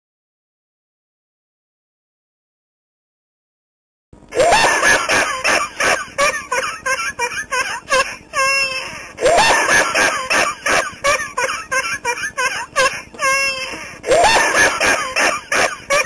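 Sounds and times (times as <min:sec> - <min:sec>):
high-pitched hysterical laughter: 0:04.3 - 0:16.0.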